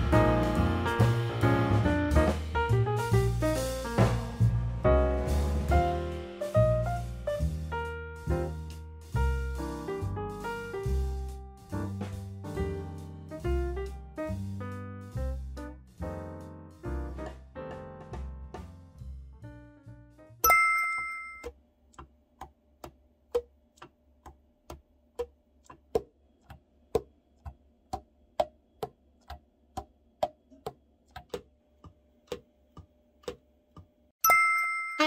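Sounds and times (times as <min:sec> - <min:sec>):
bright two-tone ding: 0:20.4 - 0:21.5, 0:34.2 - 0:35.0.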